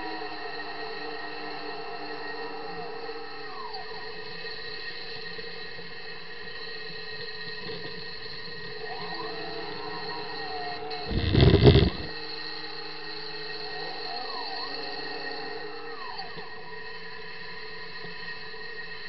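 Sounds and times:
model excavator motors whining: 11.1s - 12.1s.

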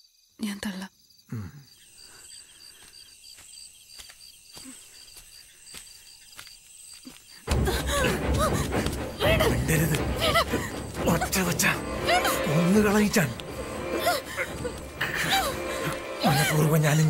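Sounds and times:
night insects chirping: 0.0s - 17.0s
woman crying out: 7.5s - 10.8s
music: 7.5s - 17.0s.

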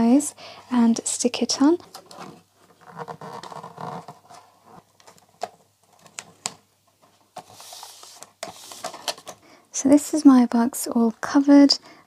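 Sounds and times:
paper rustling: 1.9s - 9.4s
hissing rub of paper: 7.5s - 8.9s.

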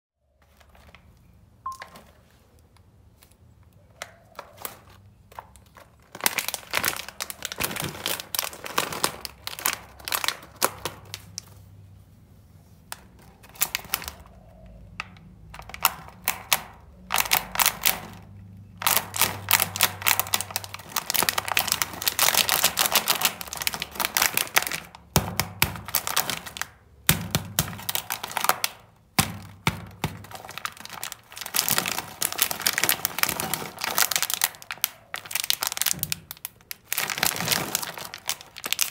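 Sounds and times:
plastic snack packet crinkling: 0.4s - 3.5s, 4.2s - 11.9s, 12.9s - 38.9s.

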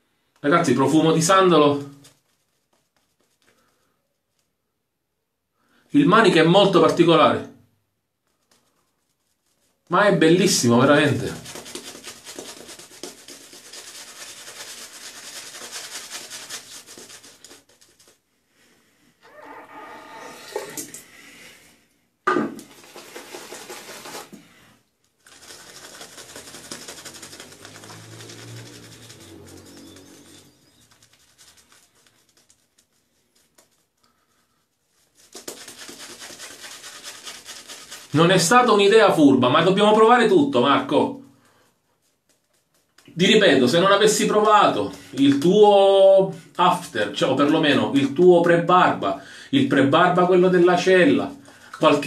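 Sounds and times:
shaving brush rubbing lather: 0.6s - 4.5s, 8.2s - 18.2s, 22.7s - 24.4s, 25.2s - 40.7s, 41.6s - 48.7s.

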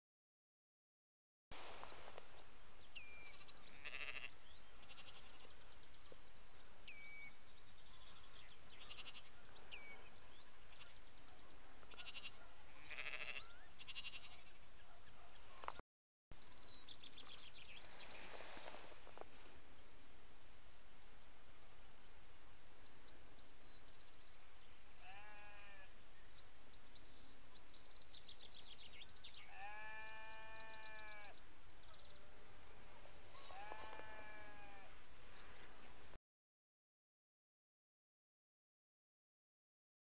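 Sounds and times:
other birdsong: 1.6s - 36.1s
low bleat-like bird call: 3.2s - 5.6s, 8.8s - 9.4s, 10.6s - 11.1s, 11.9s - 14.6s, 25.0s - 26.0s, 29.4s - 31.4s, 33.3s - 35.0s.

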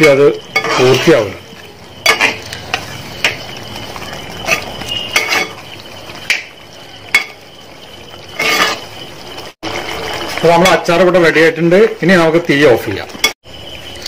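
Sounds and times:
spoon scraping a steel pot: 0.0s - 1.4s, 2.0s - 3.4s, 4.4s - 5.6s, 8.3s - 8.9s
pickle bubbling: 0.0s - 14.0s.

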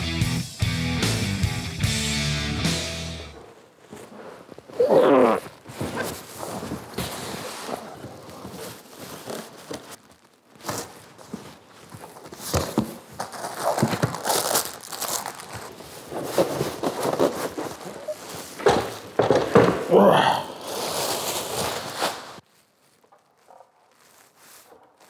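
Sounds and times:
plastic packaging crinkling: 3.4s - 19.5s, 20.5s - 25.0s
cardboard flaps scraping and knocking: 5.4s - 19.9s, 20.6s - 22.4s.

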